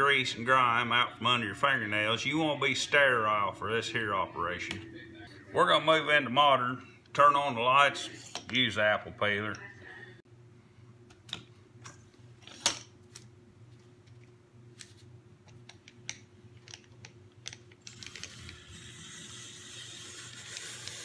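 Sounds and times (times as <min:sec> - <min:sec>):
blade hissing peeling apple: 0:18.2 - 0:21.0.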